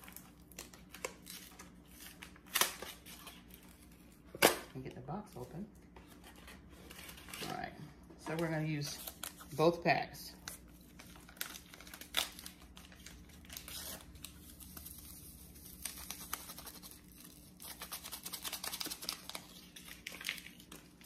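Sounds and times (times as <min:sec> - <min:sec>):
paper packets tearing and crinkling: 0:00.0 - 0:04.3, 0:08.3 - 0:09.6, 0:10.4 - 0:21.0.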